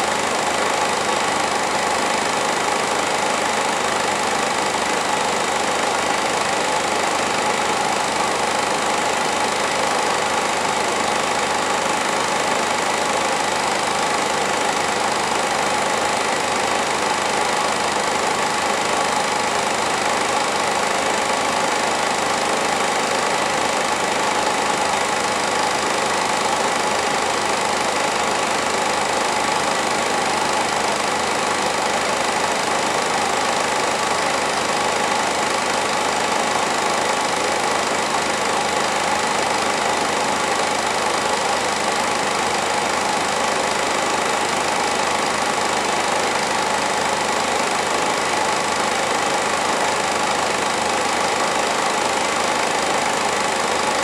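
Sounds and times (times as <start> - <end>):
film projector whirring: 0.0 - 54.0.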